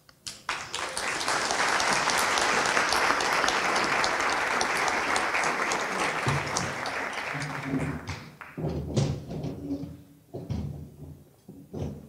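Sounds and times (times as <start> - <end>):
audience applauding: 0.3 - 8.6.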